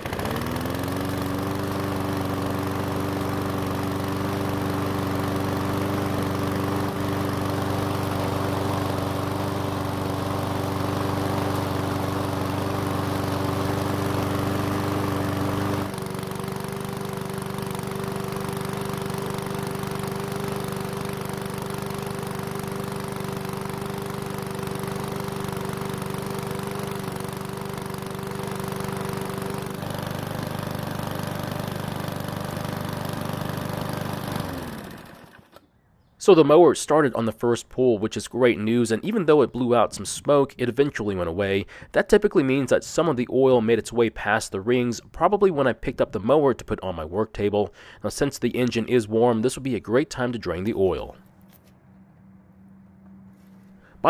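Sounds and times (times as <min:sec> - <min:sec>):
lawn mower engine running: 0:00.0 - 0:35.7, 0:47.4 - 0:51.6, 0:52.6 - 0:54.0.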